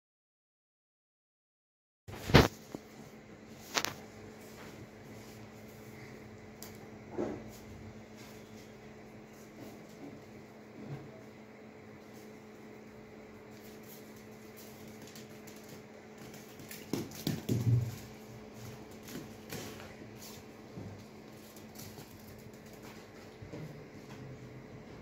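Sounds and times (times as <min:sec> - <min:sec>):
steady low hum: 0:02.1 - 0:25.0
cat paws tapping on tiles: 0:13.6 - 0:23.5
ball knocking on tile floor: 0:16.2 - 0:18.2.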